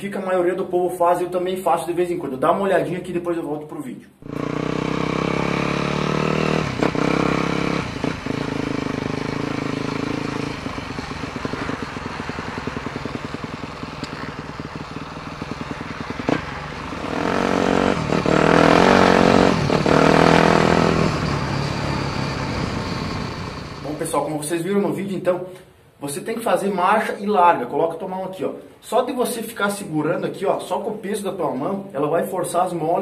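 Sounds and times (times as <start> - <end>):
dirt bike engine running: 4.2 - 24.2.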